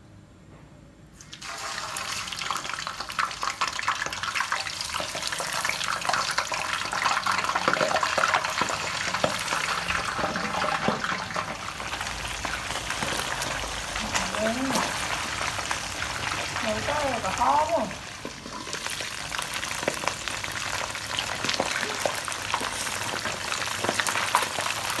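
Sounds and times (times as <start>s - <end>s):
fish sizzling in hot oil: 1.2s - 25.0s
oil popping and spattering: 18.1s - 25.0s.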